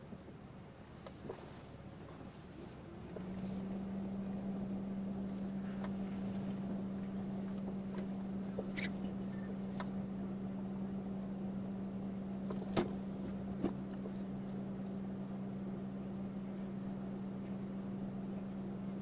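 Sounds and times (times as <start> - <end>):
car interior hum: 0.0 - 19.0.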